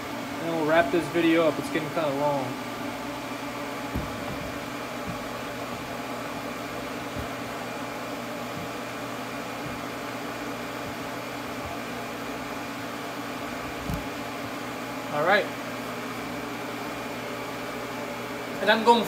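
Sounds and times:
water cooler pump and fan hum: 0:00.0 - 0:19.0
light knocks: 0:03.9 - 0:06.0, 0:06.7 - 0:07.6.

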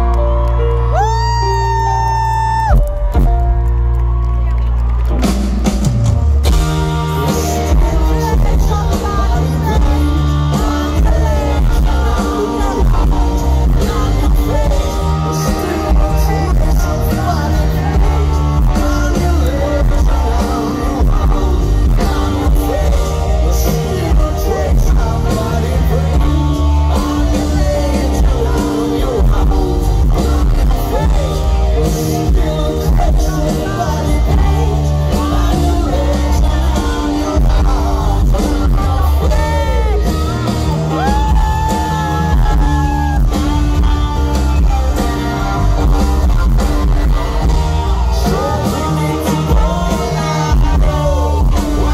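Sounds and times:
live rock band playing: 0:00.0 - 0:51.9
person singing: 0:06.4 - 0:51.9.

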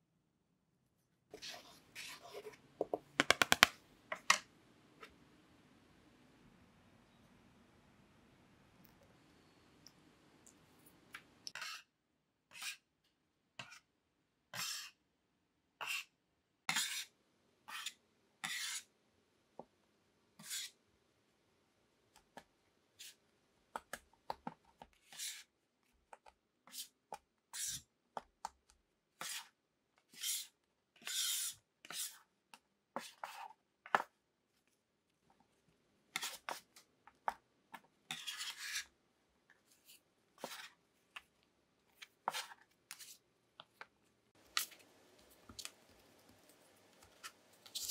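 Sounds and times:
utensil scraping dough mixture: 0:01.3 - 0:03.0, 0:14.5 - 0:15.0, 0:16.7 - 0:17.1, 0:17.7 - 0:18.9, 0:20.4 - 0:20.8, 0:29.2 - 0:34.6, 0:35.3 - 0:39.0, 0:39.6 - 0:47.9.

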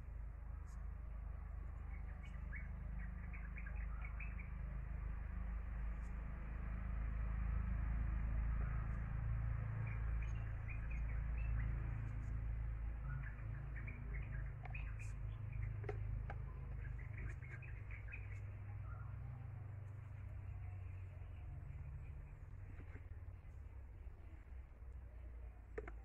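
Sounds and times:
steady low rumble: 0:00.0 - 0:26.0
small birds chirping: 0:01.5 - 0:05.0, 0:09.6 - 0:26.0.

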